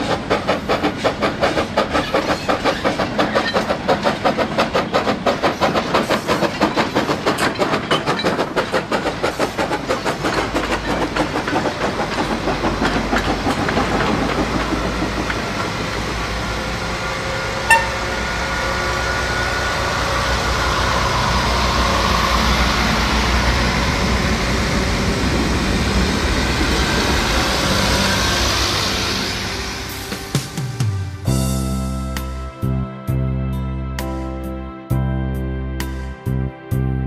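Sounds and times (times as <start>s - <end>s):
wheels clicking over track: 0.0s - 16.6s.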